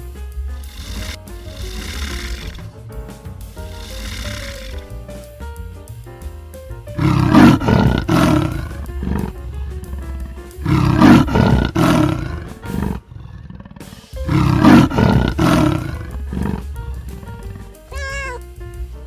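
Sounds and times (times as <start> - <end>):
light instrumental music: 0.0 - 19.0
large animal roaring: 0.7 - 2.6, 7.0 - 17.7.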